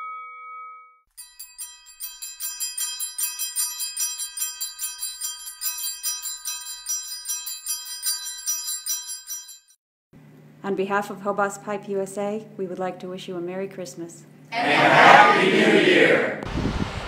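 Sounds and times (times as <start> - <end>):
festive bell music: 0.0 - 9.8.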